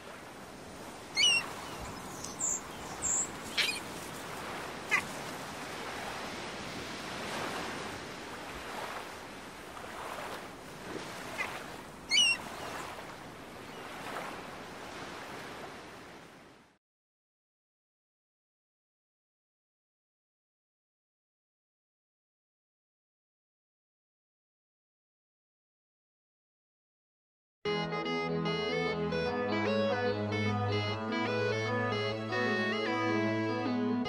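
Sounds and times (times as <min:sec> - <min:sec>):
waves washing: 0:00.0 - 0:16.7
birds calling: 0:01.0 - 0:05.4, 0:11.2 - 0:14.1.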